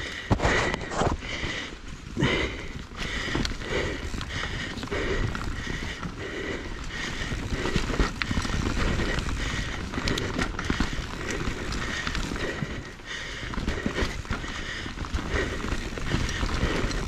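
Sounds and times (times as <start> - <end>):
bike rattle: 0.0 - 17.0
bike tyre noise: 0.0 - 17.0
wheels knocking on rocks: 2.6 - 17.0.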